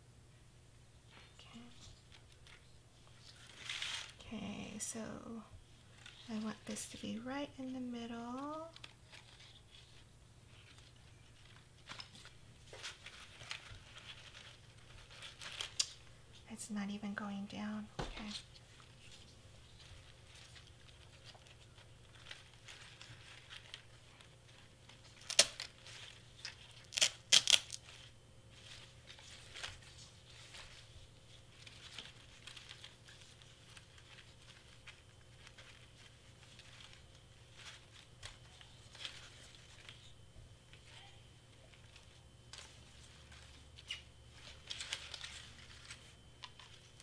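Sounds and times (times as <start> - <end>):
ribbon rustling and crinkling: 1.1 - 16.5, 17.3 - 47.0.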